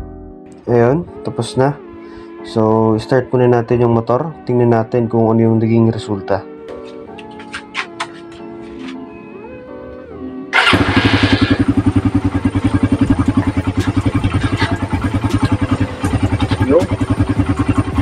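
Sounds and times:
motorcycle engine starting and idling: 10.5 - 18.0.

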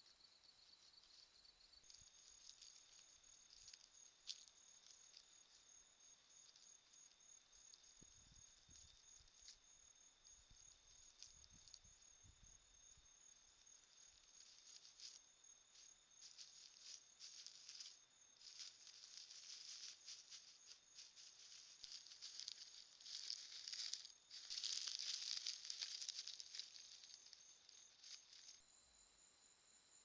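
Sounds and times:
animal rustling through dry leaves: 1.9 - 5.7, 13.8 - 28.6.

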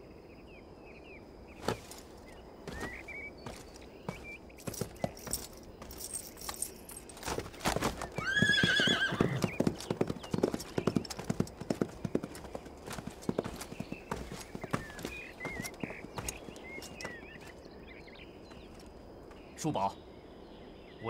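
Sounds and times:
horse hooves on dusty ground: 1.5 - 19.5
horse whinnying: 8.0 - 9.7.

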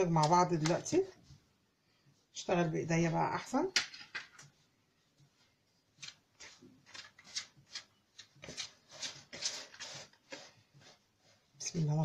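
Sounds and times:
hands rubbing flour in bowl: 6.0 - 12.0.

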